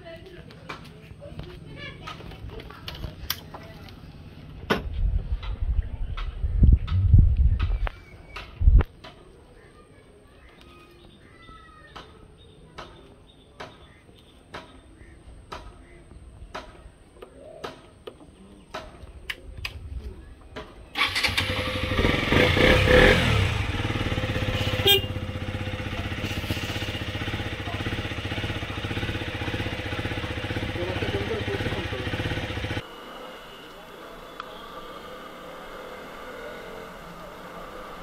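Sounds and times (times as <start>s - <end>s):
motorcycle engine starting and revving: 20.9s - 32.9s
motorcycle engine idling: 21.0s - 32.8s.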